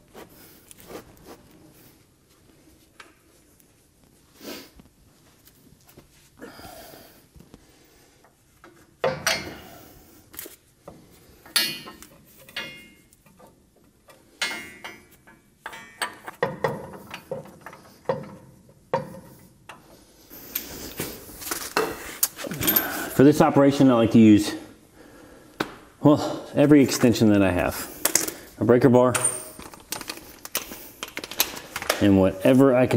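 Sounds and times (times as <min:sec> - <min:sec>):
metal parts clanking and scraping: 0:11.4 - 0:13.5, 0:14.3 - 0:23.2, 0:29.1 - 0:31.9.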